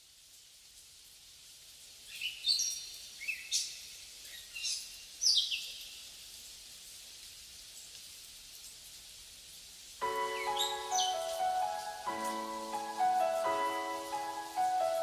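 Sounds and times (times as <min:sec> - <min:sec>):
faint hiss: 0:00.0 - 0:15.0
bird chirping: 0:10.1 - 0:14.3.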